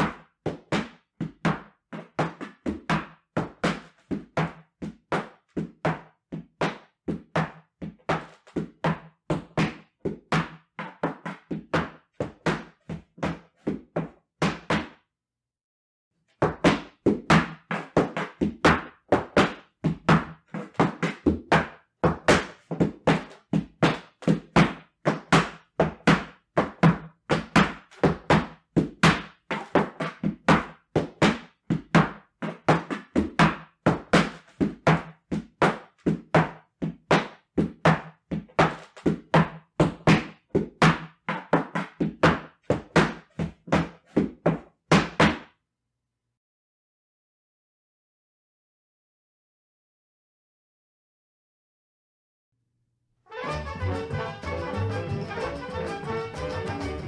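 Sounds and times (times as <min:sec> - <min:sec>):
boots stamping on wooden platform: 0:16.4 - 0:45.4.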